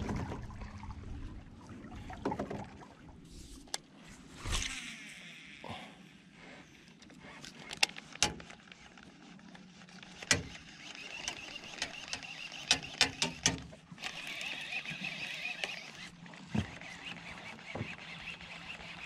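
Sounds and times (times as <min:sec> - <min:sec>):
fishing reel whirring: 0:03.6 - 0:19.0
fishing tackle clicking in metal boat: 0:07.0 - 0:09.1, 0:09.9 - 0:16.0.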